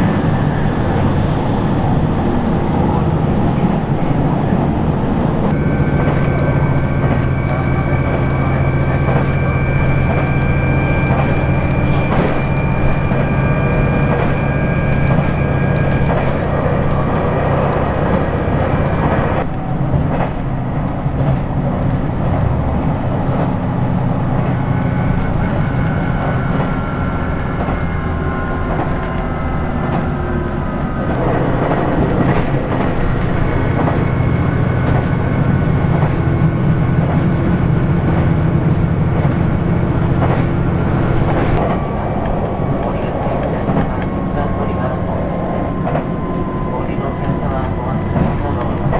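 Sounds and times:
rail joint clicks: 0:00.0 - 0:48.9
railcar engine drone: 0:00.0 - 0:48.9.

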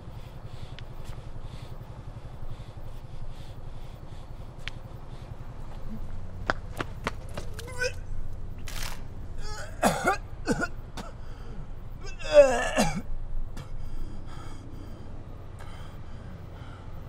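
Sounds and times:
man groaning in pain: 0:07.6 - 0:08.0, 0:09.4 - 0:10.0, 0:12.0 - 0:13.8
man coughing: 0:09.4 - 0:11.2, 0:12.0 - 0:13.7.

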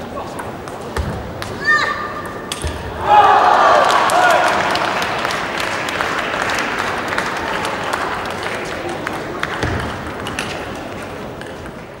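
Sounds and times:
crowd noise: 0:00.0 - 0:12.0
audience applause: 0:03.1 - 0:10.2.

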